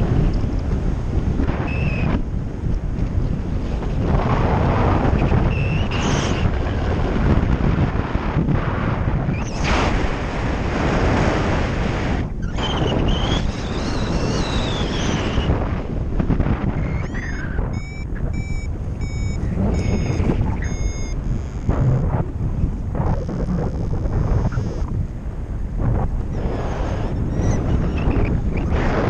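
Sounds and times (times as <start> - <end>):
wind rushing over microphone: 0.0 - 29.0
short rising electronic tones: 16.8 - 25.0.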